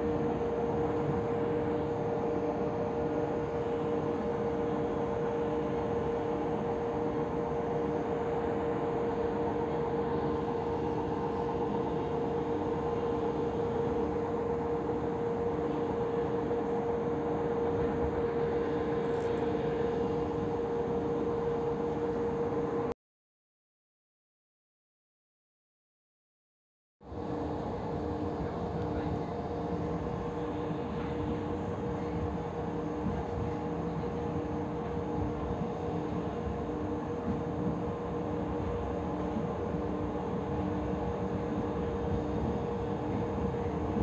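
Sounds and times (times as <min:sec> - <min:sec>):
constant hum tone: 0:00.0 - 0:22.9, 0:27.1 - 0:44.0
train running rumble: 0:27.1 - 0:44.0.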